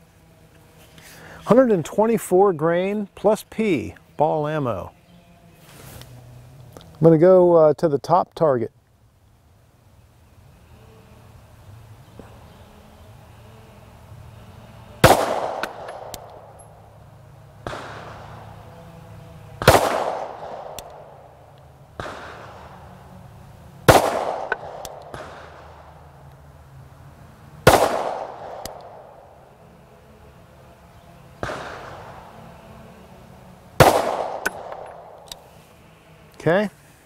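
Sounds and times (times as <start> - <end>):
faint distant gunshots: 15.0 - 16.6, 17.6 - 18.8, 19.6 - 22.9, 23.8 - 26.0, 27.6 - 29.3, 31.3 - 32.5, 33.8 - 35.3
pistol shots with echo: 15.0 - 16.6, 19.6 - 21.1, 23.9 - 25.6, 27.6 - 29.1, 33.8 - 35.2.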